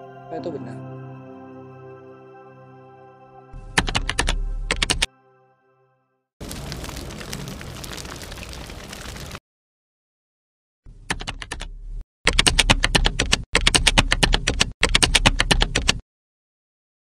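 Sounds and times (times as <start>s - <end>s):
computer keyboard typing: 3.8s - 5.1s, 11.1s - 11.7s, 12.3s - 16.0s.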